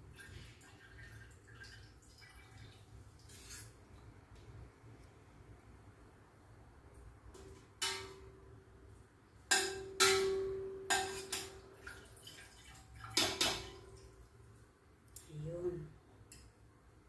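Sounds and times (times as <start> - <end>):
metal utensils clanking on a pot: 7.4 - 8.3, 9.5 - 11.9, 13.1 - 14.0.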